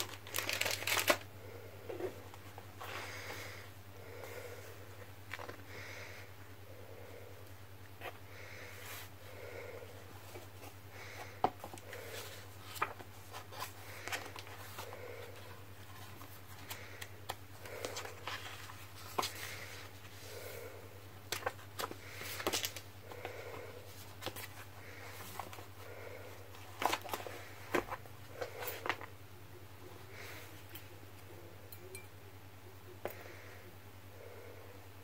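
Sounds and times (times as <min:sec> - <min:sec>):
paper pages turning: 0:00.0 - 0:01.3, 0:11.6 - 0:14.9, 0:21.3 - 0:22.9.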